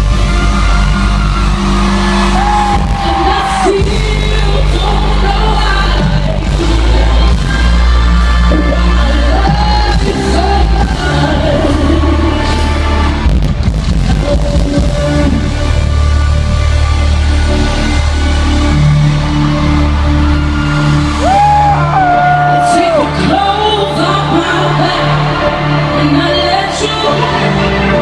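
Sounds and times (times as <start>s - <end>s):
loud amplified band: 0.0s - 28.0s
woman singing into microphone: 2.7s - 13.2s, 14.0s - 16.2s, 22.4s - 28.0s.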